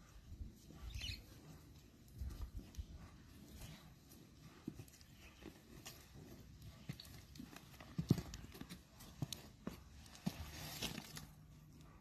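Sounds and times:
goat hooves on gravel: 0:01.9 - 0:11.5.

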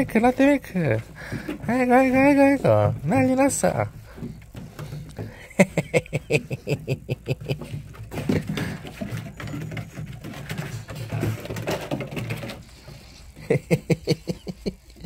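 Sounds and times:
person chuckling and murmuring: 0:05.1 - 0:09.0, 0:13.3 - 0:15.0.

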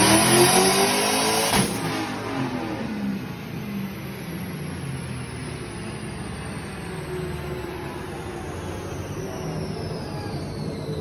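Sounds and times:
truck engine running at low revs: 0:00.0 - 0:11.0
high whine falling in pitch: 0:03.2 - 0:11.0.

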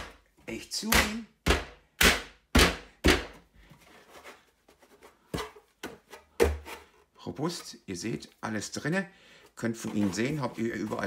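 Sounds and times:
plastic rubbing: 0:09.6 - 0:11.0.

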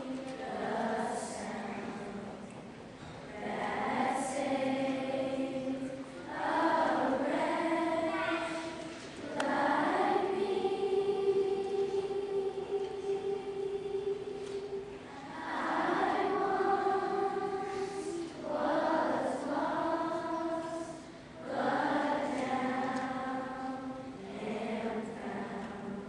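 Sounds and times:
children's chorus singing: 0:00.0 - 0:26.0.

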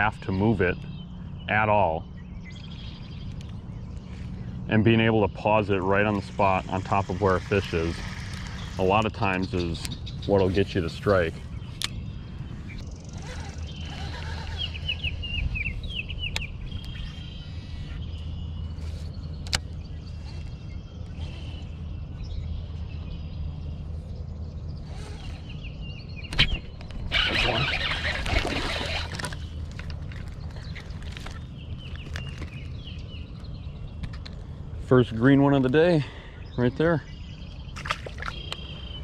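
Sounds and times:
low steady rumble: 0:00.0 - 0:39.0
small bird chirping: 0:06.0 - 0:34.3.

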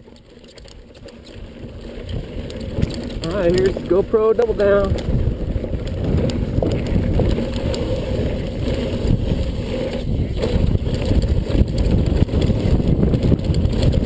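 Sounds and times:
bike rattling: 0:00.0 - 0:14.0
tyres rumbling over dirt: 0:00.0 - 0:14.0
wind buffeting microphone: 0:01.3 - 0:14.0.

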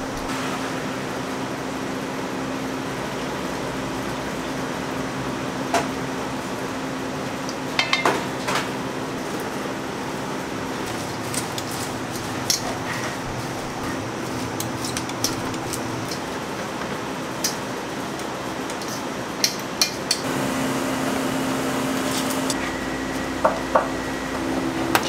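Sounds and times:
kitchen hum: 0:00.0 - 0:25.0
utensils clinking against metal bowl: 0:07.8 - 0:08.6, 0:10.9 - 0:16.8.

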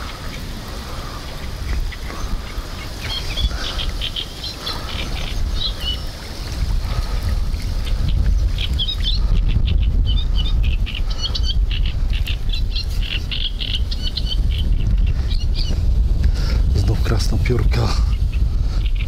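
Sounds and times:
wind rumbling on microphone: 0:00.0 - 0:19.0
small bird chirping: 0:01.2 - 0:06.2, 0:07.8 - 0:15.8.

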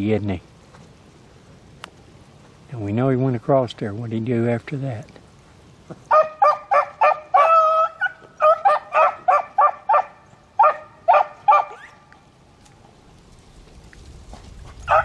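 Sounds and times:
dogs baying: 0:06.1 - 0:12.0, 0:14.7 - 0:15.0.

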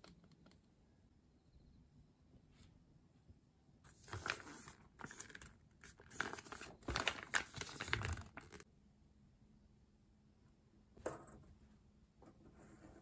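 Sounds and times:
plastic pouch crinkling: 0:03.9 - 0:08.6.

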